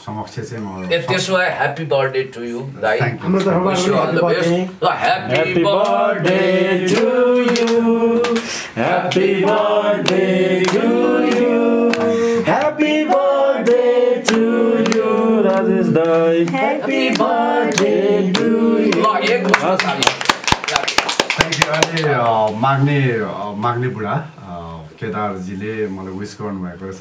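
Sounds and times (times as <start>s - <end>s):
man singing: 11.3s - 19.2s.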